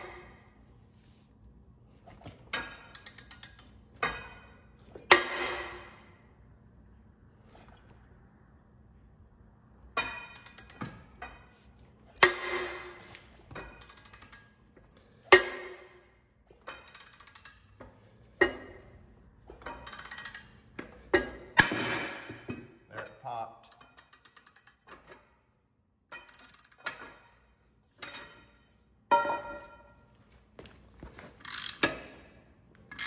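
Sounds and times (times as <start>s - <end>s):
ratchet clicks: 2.9s - 4.2s, 10.4s - 11.0s, 13.6s - 14.6s, 16.7s - 17.7s, 19.7s - 20.6s, 23.7s - 25.0s, 26.2s - 27.1s, 31.4s - 32.1s
ringing metal clanks: 28.0s - 30.0s.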